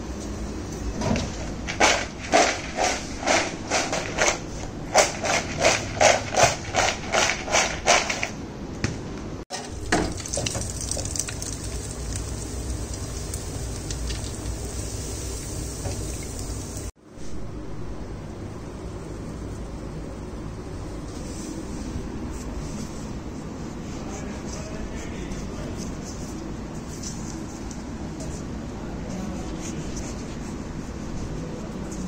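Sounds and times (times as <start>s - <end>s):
fries rattling in a bowl: 1.4s - 8.4s, 9.5s - 16.9s
potatoes sizzling in oil: 9.6s - 16.9s.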